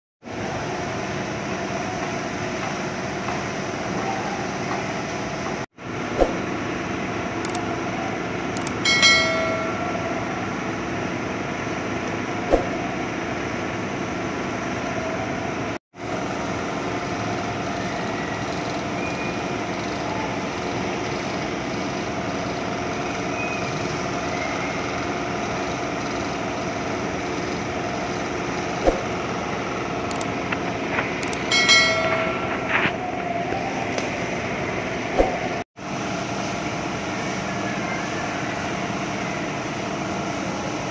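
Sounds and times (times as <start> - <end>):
machinery humming: 0.2 - 40.9
brief high-pitched tone: 31.2 - 33.2.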